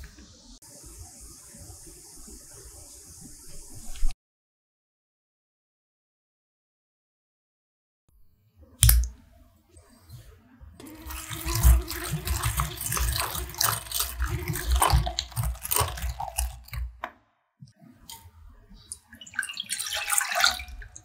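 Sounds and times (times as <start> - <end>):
electric whisk motor hum: 10.8 - 17.0
milk pouring into saucepan: 10.8 - 17.0, 18.9 - 21.0
whisk clicking against bowl: 10.9 - 17.0.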